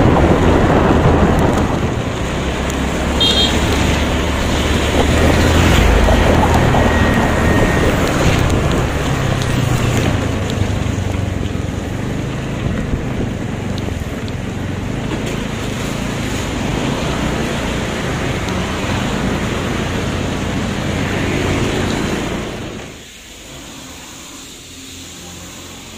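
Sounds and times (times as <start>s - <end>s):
wind rushing over microphone: 0.0s - 23.0s
tyres hissing on wet road: 0.0s - 25.9s.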